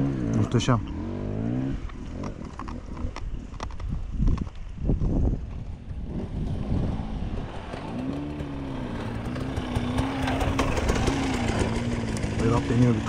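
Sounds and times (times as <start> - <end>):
dirt bike engine revving: 0.0 - 3.1, 6.0 - 13.0.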